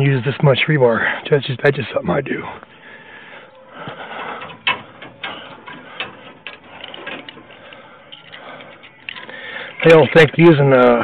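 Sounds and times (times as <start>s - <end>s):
rebar and wire scraping: 3.8s - 11.0s
sharp metallic clicks: 4.2s - 10.7s.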